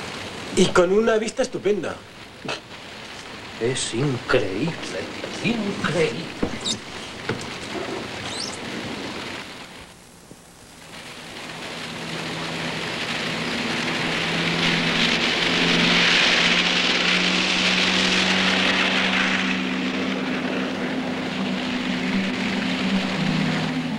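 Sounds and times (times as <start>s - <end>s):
broad rushing noise: 0.0s - 23.9s
low sustained notes: 10.7s - 23.9s.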